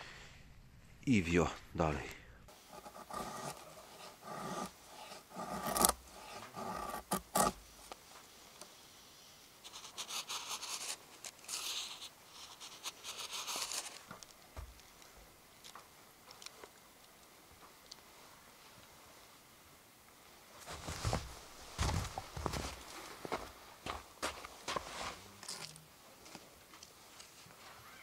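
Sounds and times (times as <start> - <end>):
gear rustling and scraping: 9.7 - 14.3.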